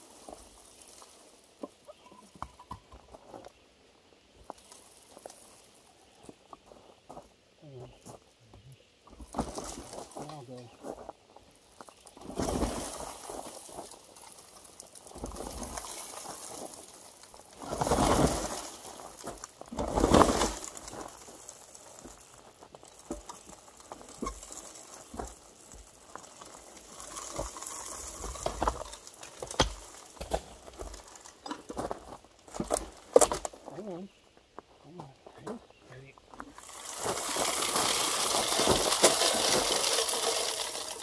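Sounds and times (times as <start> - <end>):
loose stones clattering: 0.0 - 3.7, 4.4 - 33.8, 34.4 - 41.0
stone ballast pouring from hopper: 12.0 - 31.4, 36.5 - 41.0.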